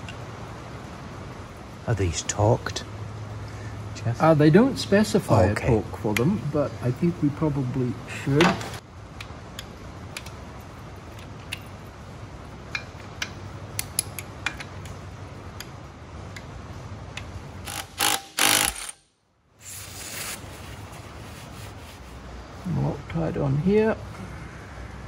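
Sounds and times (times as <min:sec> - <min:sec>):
steady low hum: 0:00.0 - 0:25.0
torque wrench ratchet clicks: 0:17.6 - 0:19.0.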